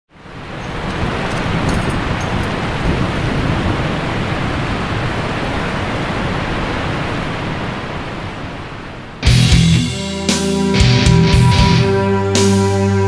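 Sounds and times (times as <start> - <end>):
wind buffeting microphone: 0.2 - 8.9.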